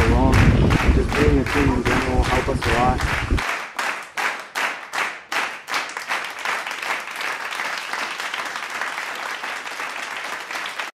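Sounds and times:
applause: 0.0 - 10.9.

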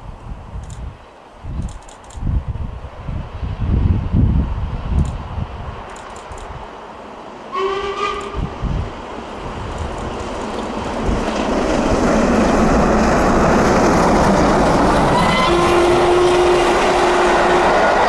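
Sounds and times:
steam train passing: 2.8 - 18.0
steam locomotive whistle: 7.5 - 8.5, 15.1 - 18.0.

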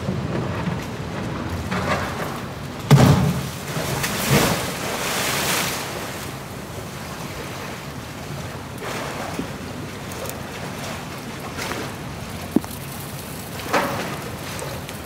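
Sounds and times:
water churning and sloshing: 0.0 - 15.0
heavy splash: 2.9 - 7.8.

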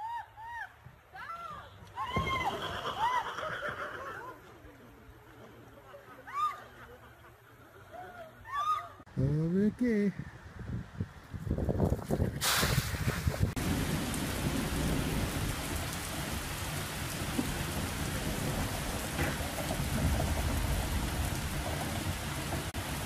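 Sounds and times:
heavy rain on pavement: 12.4 - 23.0.

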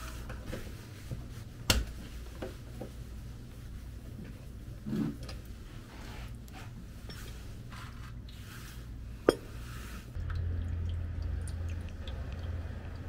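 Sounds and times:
oil dripping: 10.1 - 13.0.

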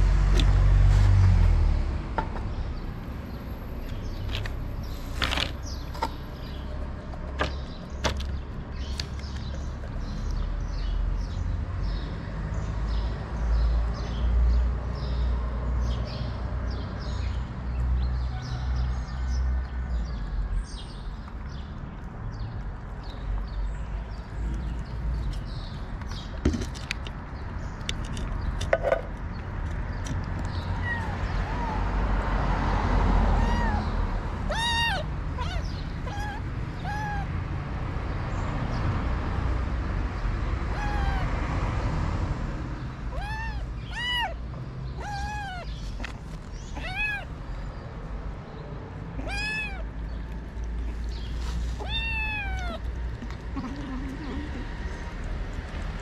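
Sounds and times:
kitten meowing: 30.6 - 32.0, 33.3 - 37.3, 40.7 - 41.3, 43.1 - 44.4, 45.0 - 45.8, 46.7 - 47.3, 49.2 - 49.9, 51.8 - 52.9.

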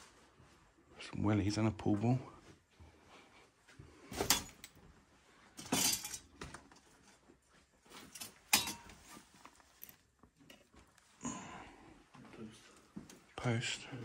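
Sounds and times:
glass clinking: 8.5 - 9.0.

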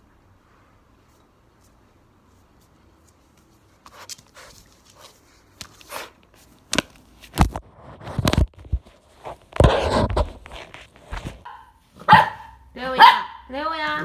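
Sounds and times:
paws scraping a phone: 7.4 - 11.5.

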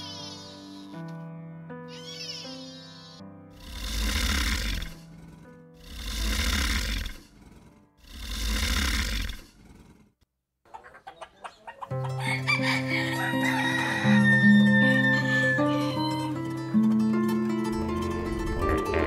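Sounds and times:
long breathy hisses: 3.6 - 10.0
chickens clucking: 10.7 - 14.3
rooster crowing: 11.9 - 16.2
soft music with plucked strings: 11.9 - 19.0.

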